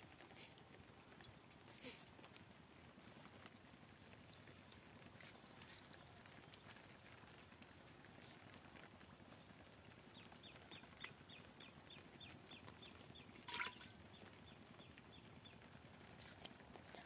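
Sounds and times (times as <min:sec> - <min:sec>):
fish splashing into water: 0:13.4 - 0:14.1
metallic clink of pot: 0:13.5 - 0:13.9.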